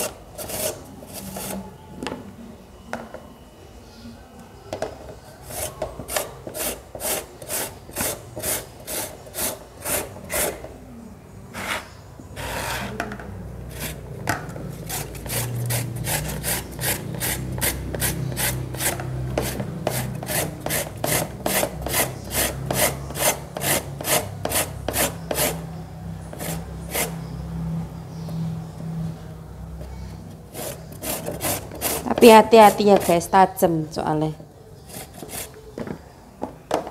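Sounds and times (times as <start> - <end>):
papaya rasping on a shredder: 14.7 - 25.7, 26.3 - 27.2, 30.4 - 33.4.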